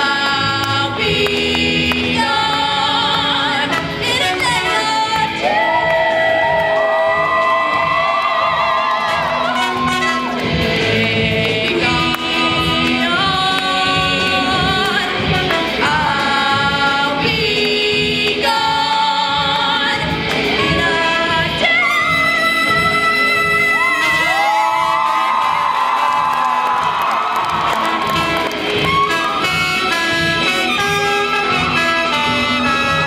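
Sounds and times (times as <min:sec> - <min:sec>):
woman singing: 0:00.0 - 0:25.1
live rock band playing: 0:08.8 - 0:33.0.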